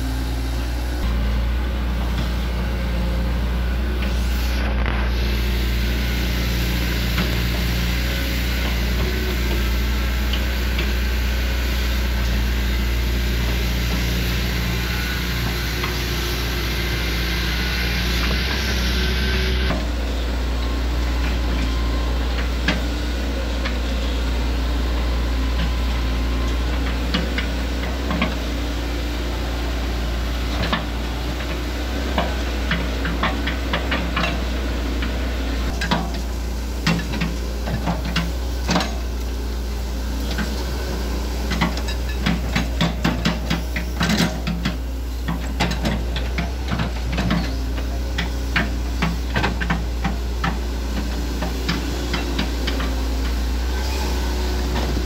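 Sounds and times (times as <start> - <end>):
diesel engine running: 0.0 - 55.0
metal crawler tracks clanking: 29.3 - 55.0.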